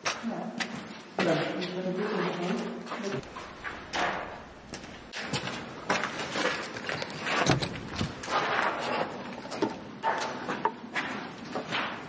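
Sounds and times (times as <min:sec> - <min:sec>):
footsteps crunching over debris: 0:00.0 - 0:12.0
knocks and scrapes: 0:05.2 - 0:12.0.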